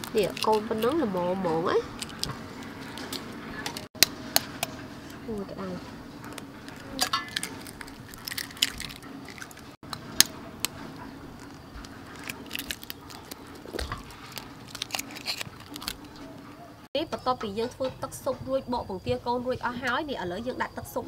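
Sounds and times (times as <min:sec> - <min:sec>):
eggshell cracking: 0:01.9 - 0:04.5, 0:06.3 - 0:16.4.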